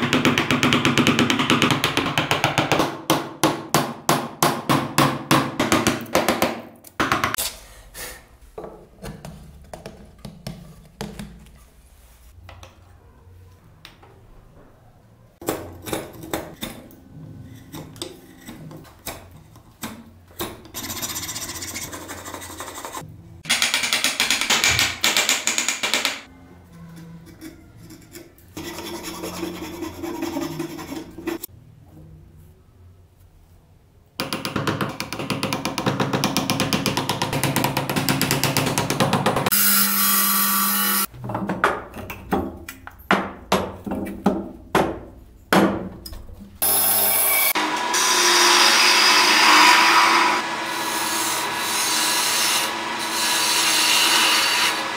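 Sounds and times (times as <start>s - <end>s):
file rasping on wood: 28.1s - 31.5s
chisel cutting wood: 46.6s - 54.9s.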